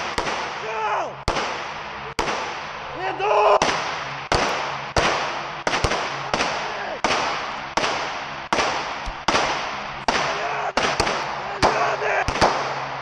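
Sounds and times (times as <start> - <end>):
pistol shots echoing indoors: 3.6 - 12.8.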